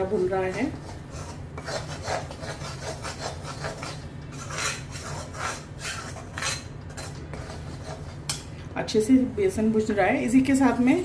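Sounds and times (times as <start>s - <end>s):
metal spoon scraping a pan: 0.0s - 8.6s.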